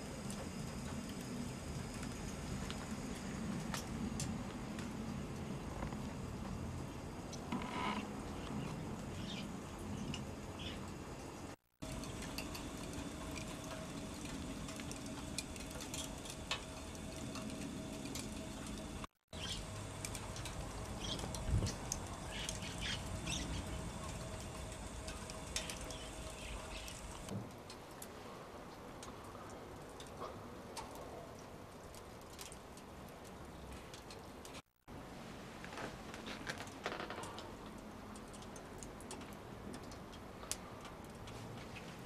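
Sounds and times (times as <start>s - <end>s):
low steady hum: 0.0s - 31.4s
small birds chirping: 8.4s - 10.9s, 19.3s - 27.3s.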